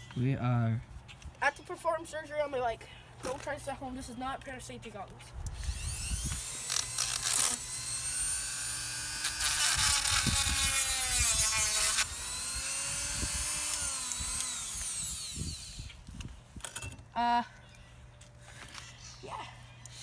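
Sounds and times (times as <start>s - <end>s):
rotary tool whining: 5.5s - 17.1s
harsh grinding: 5.6s - 15.9s.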